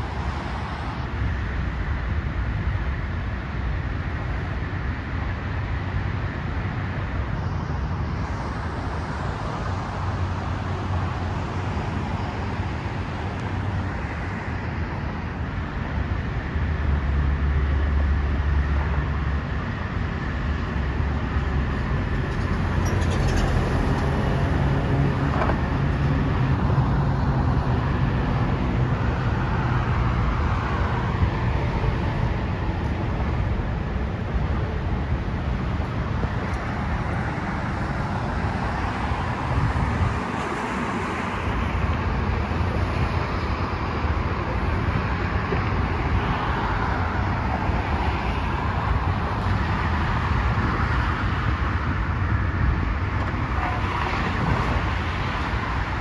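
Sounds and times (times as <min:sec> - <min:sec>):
cars passing on road: 0:00.0 - 0:56.0.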